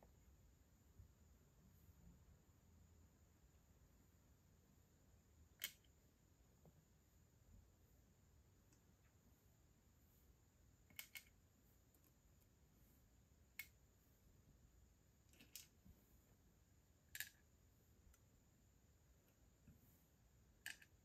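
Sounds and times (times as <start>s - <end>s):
faint room hiss: 0.0s - 21.0s
tweezers clicking on plastic pegboard: 5.6s - 5.9s, 10.8s - 11.4s, 13.5s - 13.8s, 17.1s - 17.4s, 20.6s - 21.0s.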